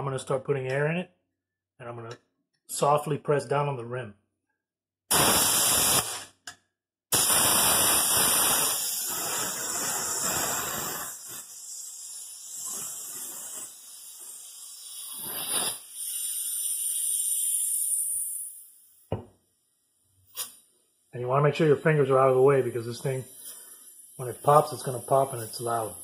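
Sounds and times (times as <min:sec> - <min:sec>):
compressed air hissing in spurts: 0:05.1 - 0:06.4, 0:07.1 - 0:19.0, 0:21.6 - 0:26.0.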